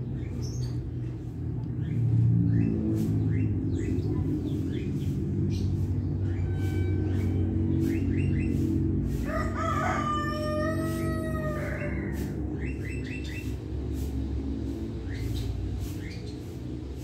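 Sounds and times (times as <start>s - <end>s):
low mechanical rumble: 0.0s - 17.0s
small birds chirping: 0.0s - 17.0s.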